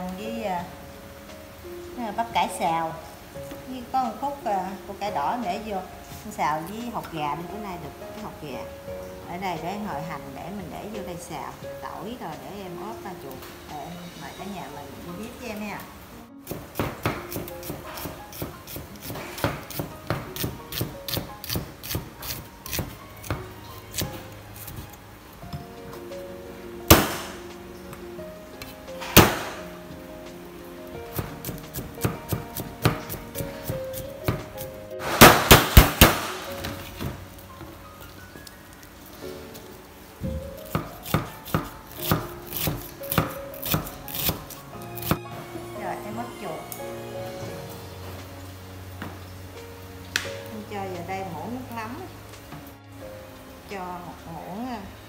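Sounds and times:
background music: 0:00.0 - 0:55.0
knife chopping on wooden block: 0:16.5 - 0:23.4, 0:40.7 - 0:44.4.

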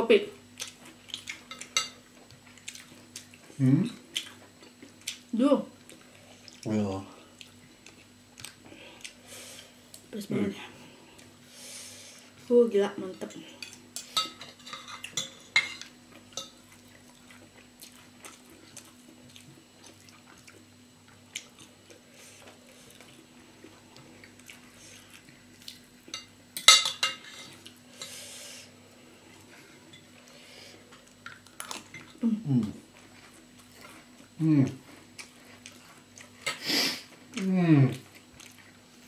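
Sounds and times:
faint steady hum: 0:00.0 - 0:39.0
cutlery clinking on ceramic dishes: 0:01.5 - 0:02.0, 0:13.6 - 0:16.6, 0:26.1 - 0:27.6.

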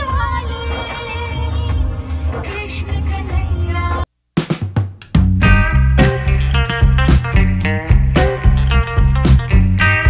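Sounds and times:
instrumental music with guitar: 0:05.4 - 0:10.0.

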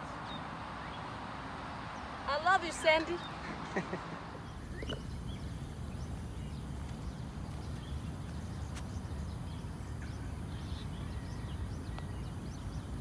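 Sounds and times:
bird chirps: 0:04.3 - 0:13.0.

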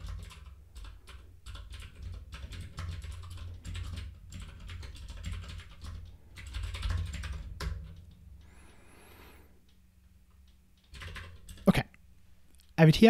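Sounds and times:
keyboard typing: 0:00.0 - 0:08.6, 0:10.3 - 0:11.8.

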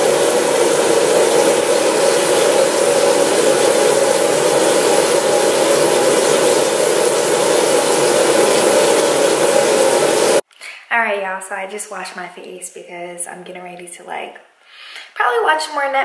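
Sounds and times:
tap water running into sink: 0:00.0 - 0:10.4.

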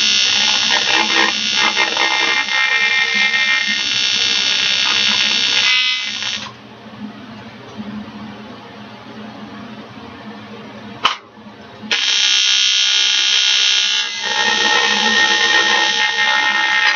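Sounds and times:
welding arc buzzing: 0:00.0 - 0:06.6, 0:11.9 - 0:16.9.

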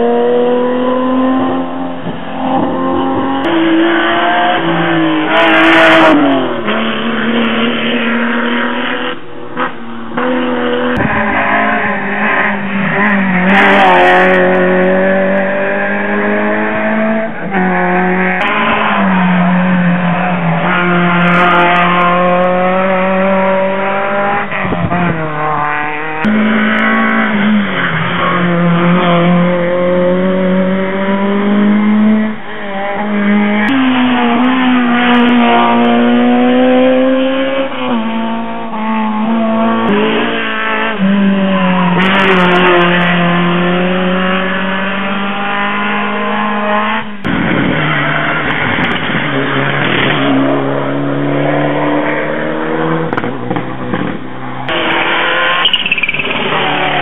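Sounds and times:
rally car engine at high revs: 0:00.0 - 0:57.0.

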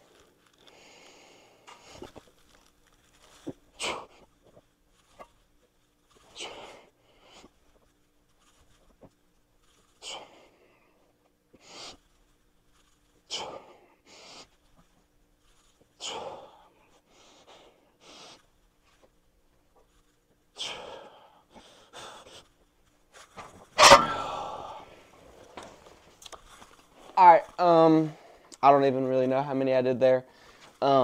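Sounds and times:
man exhaling and gasping: 0:24.0 - 0:25.0.

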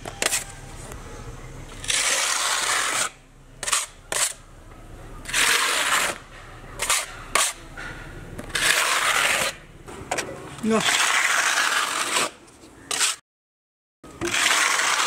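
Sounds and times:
putty blade scraping wall: 0:01.8 - 0:04.4, 0:05.2 - 0:13.2, 0:14.2 - 0:15.0.

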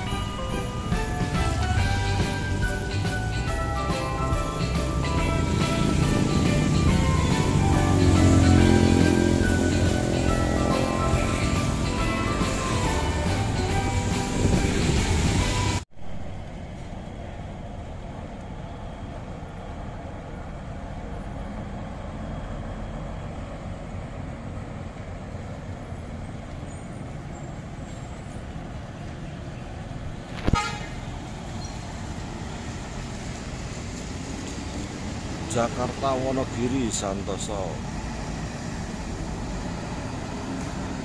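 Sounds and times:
bus and motorcycle engines rumbling: 0:00.0 - 0:41.0
vehicle horn toot: 0:30.4 - 0:31.0.

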